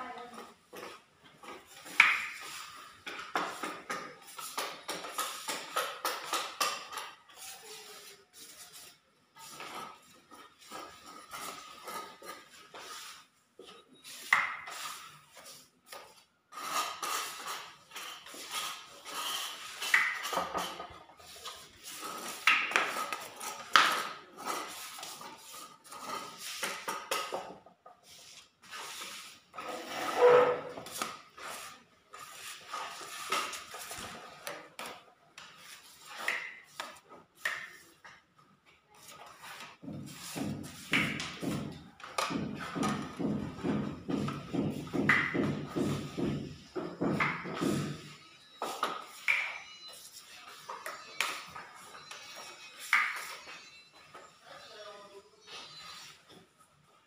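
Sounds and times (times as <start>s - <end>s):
trowel scraping: 4.2s - 27.3s, 28.0s - 34.4s.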